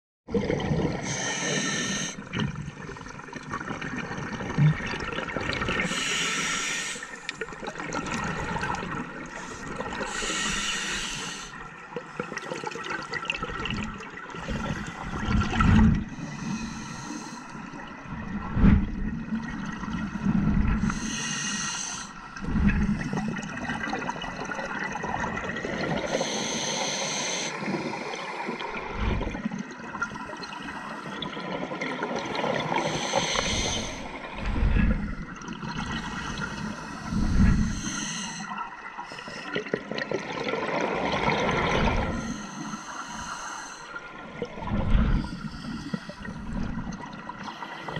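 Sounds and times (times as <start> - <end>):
bubbles gurgling underwater: 0.3 - 1.3, 2.2 - 6.0, 7.4 - 10.2, 11.9 - 16.3, 22.3 - 26.2, 38.6 - 42.4
regulator hissing inhale: 1.0 - 2.2, 5.9 - 7.2, 9.4 - 11.6, 16.2 - 17.7, 20.8 - 22.2, 26.1 - 28.8, 32.8 - 35.3, 36.0 - 39.6, 42.1 - 44.1, 45.2 - 46.6.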